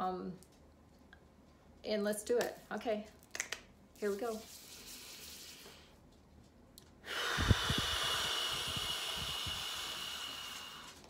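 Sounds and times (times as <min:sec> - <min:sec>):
breath puffs on microphone: 0:07.0 - 0:11.0
person exhaling through pursed lips: 0:07.0 - 0:11.0.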